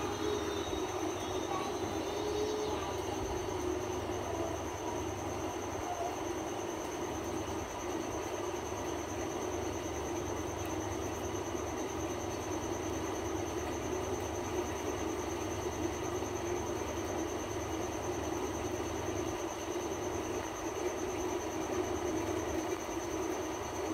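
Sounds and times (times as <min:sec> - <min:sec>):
high-pitched whine: 0:00.0 - 0:06.2.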